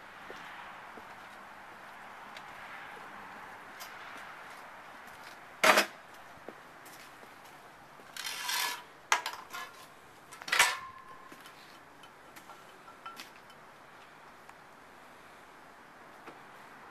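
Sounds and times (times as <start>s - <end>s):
scraping rustle: 8.1s - 11.8s
hard objects clinking: 10.5s - 13.6s.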